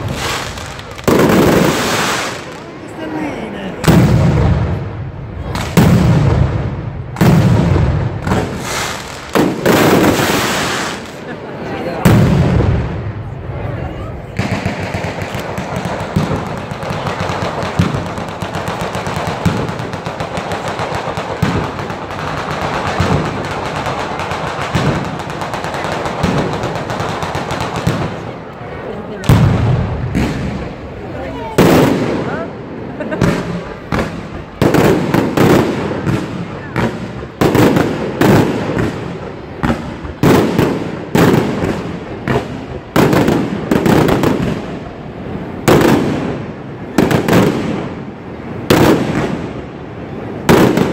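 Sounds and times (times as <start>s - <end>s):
firecrackers crackling rapidly: 0.0s - 50.9s
firework bangs: 0.0s - 50.9s.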